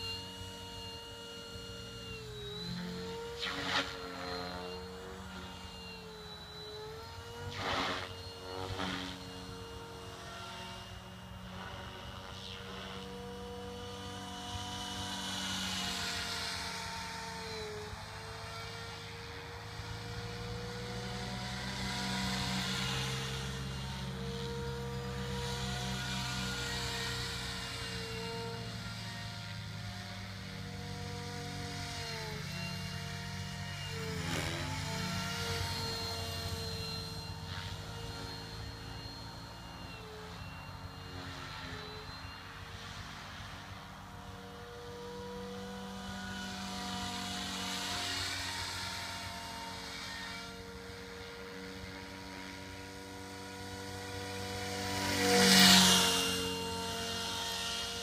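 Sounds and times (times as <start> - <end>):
rc helicopter motor whine: 0.0 - 58.0.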